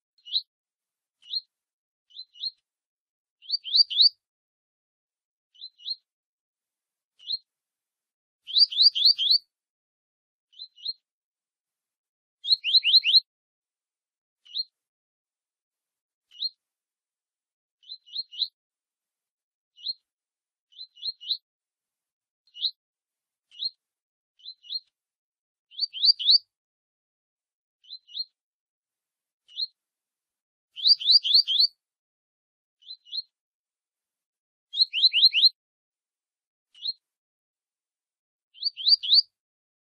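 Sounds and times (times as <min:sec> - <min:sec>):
birds chirping: 0:03.4 - 0:04.1, 0:08.5 - 0:09.4, 0:25.7 - 0:26.4, 0:30.8 - 0:31.7, 0:34.8 - 0:35.5, 0:38.6 - 0:39.2.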